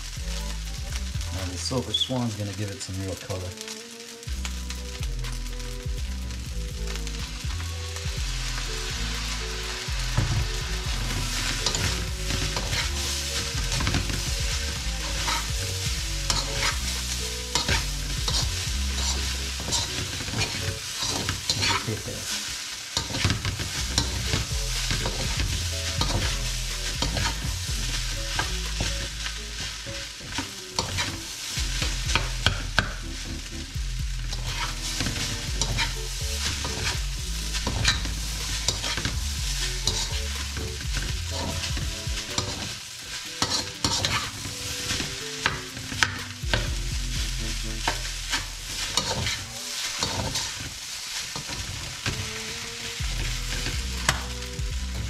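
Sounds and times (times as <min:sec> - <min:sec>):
rice sizzling in a pan: 0:00.0 - 0:55.0
metal spoon scraping a pan: 0:08.5 - 0:33.0, 0:34.3 - 0:46.7, 0:47.8 - 0:52.6.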